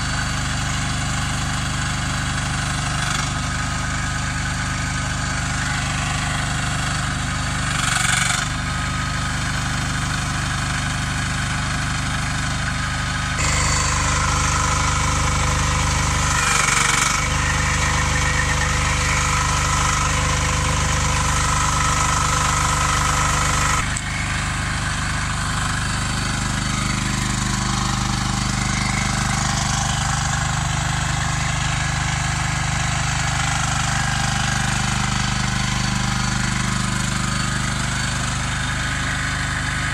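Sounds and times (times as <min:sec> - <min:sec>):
mini excavator engine running: 0:00.0 - 0:39.9.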